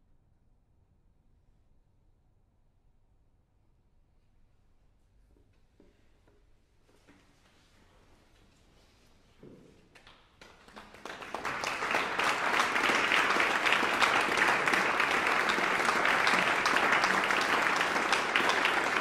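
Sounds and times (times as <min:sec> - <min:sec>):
audience applause: 0:10.4 - 0:19.0.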